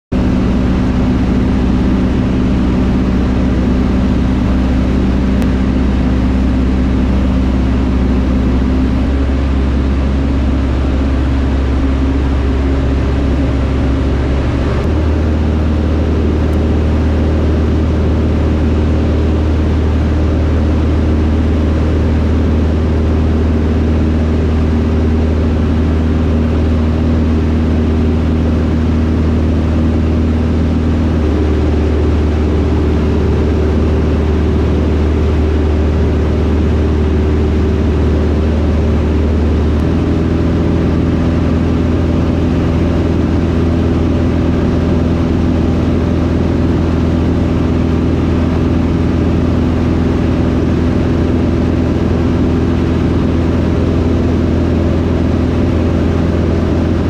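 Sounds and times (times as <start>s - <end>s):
aircraft engine and propeller drone: 0.1s - 57.0s
rushing air: 0.9s - 20.1s.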